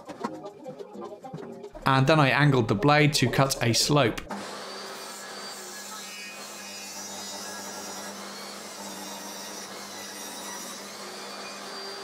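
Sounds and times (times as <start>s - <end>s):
table saw cutting wood: 4.3s - 12.0s.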